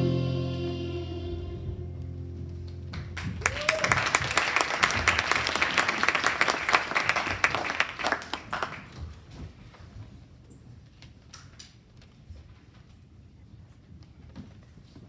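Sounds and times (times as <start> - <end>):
audience clapping: 2.9 - 9.2.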